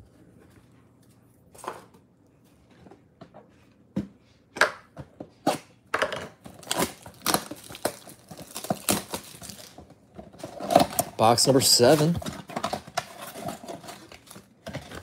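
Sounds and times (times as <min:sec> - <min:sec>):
plastic wrap crackling: 0:06.5 - 0:15.0.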